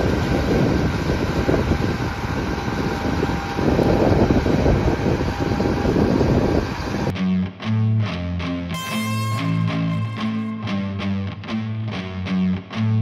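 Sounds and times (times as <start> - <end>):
combine harvester drone: 0.0 - 7.1
wind buffeting microphone: 0.0 - 7.1.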